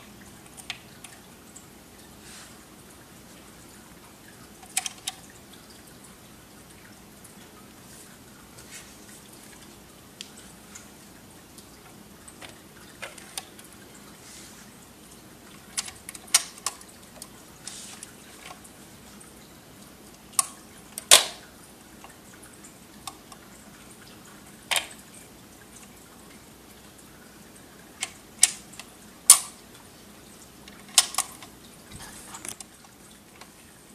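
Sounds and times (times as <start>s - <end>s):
faint steady hum: 0.0s - 33.9s
record changer mechanical clicks: 20.3s - 21.4s, 28.0s - 29.6s, 30.6s - 31.6s.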